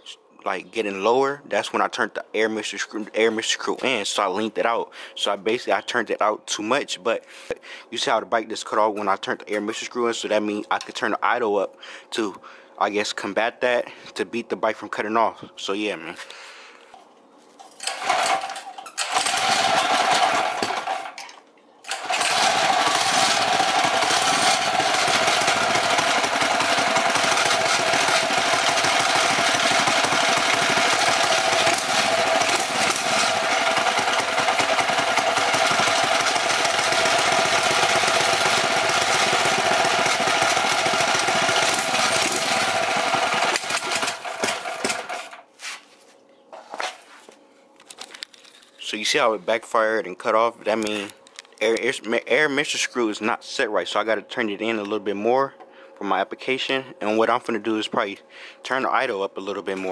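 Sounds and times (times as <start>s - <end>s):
engine backfiring: 17.8s - 21.2s, 21.9s - 45.4s
small engine running: 17.8s - 21.2s, 21.9s - 45.4s.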